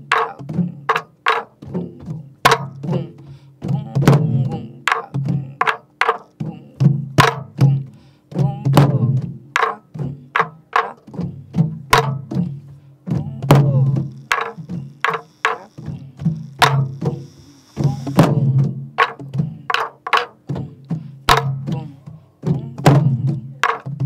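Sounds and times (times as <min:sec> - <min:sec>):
barrel drum booming strokes: 0:11.1 - 0:19.7.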